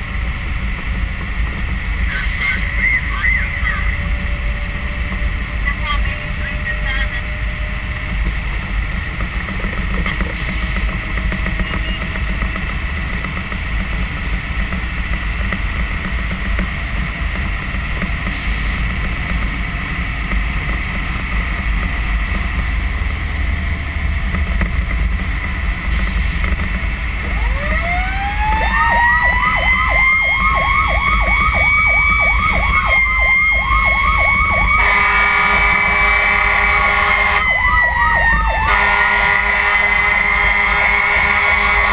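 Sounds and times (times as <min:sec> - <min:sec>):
truck engine and road rumble: 0:00.0 - 0:41.9
siren wailing: 0:27.2 - 0:41.9
siren yelping: 0:27.2 - 0:41.9
air horn: 0:34.7 - 0:37.7, 0:38.6 - 0:41.9.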